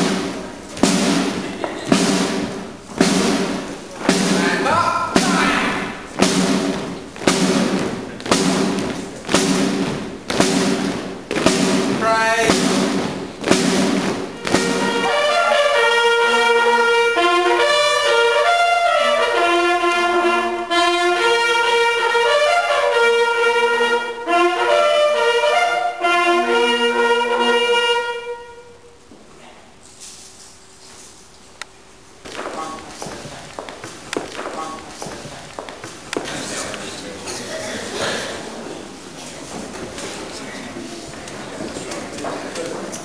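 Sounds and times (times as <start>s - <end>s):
marching drums beating: 0.0s - 28.7s, 32.3s - 36.7s
brass instruments playing: 0.0s - 29.0s.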